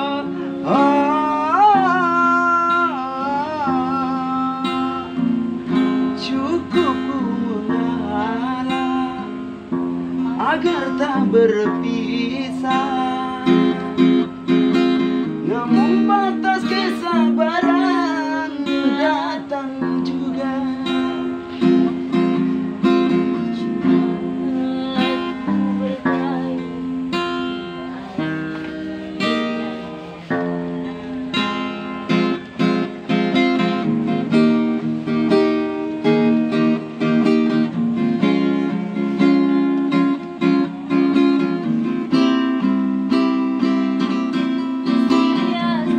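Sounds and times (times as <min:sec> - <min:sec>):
person singing: 0:00.0 - 0:37.8, 0:38.4 - 0:45.9
acoustic guitar strumming chords: 0:00.0 - 0:45.9.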